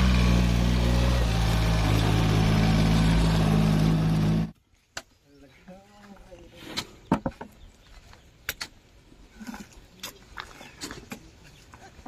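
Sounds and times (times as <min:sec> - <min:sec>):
tractor diesel engine running: 0:00.0 - 0:04.5.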